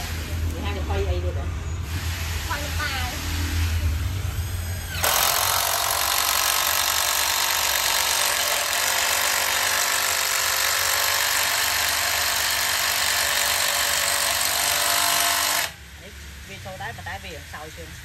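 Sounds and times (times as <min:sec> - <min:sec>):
impact driver hammering: 0:04.9 - 0:15.8.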